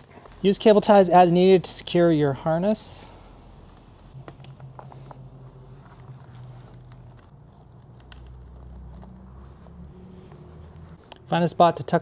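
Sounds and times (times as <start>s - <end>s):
low background hum: 0.0s - 12.0s
cables rustling: 3.6s - 11.3s.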